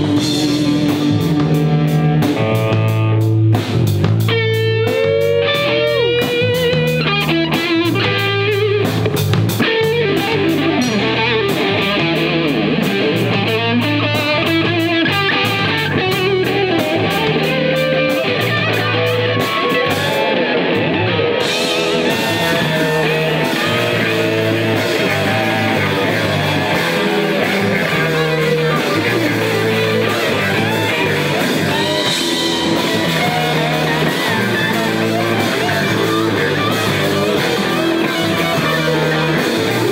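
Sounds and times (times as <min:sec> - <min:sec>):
drum kit: 0:00.0 - 0:39.9
electric guitar with sliding notes: 0:00.0 - 0:39.9.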